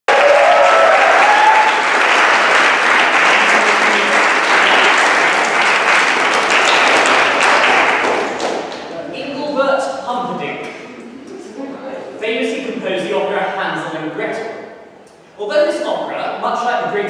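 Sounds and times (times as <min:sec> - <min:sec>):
audience applauding: 0:00.1 - 0:08.9.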